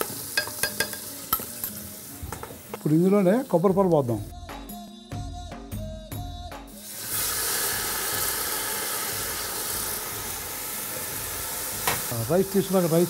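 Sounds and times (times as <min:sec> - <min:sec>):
liquid sizzling in hot oil: 0:00.0 - 0:04.2, 0:06.8 - 0:13.0.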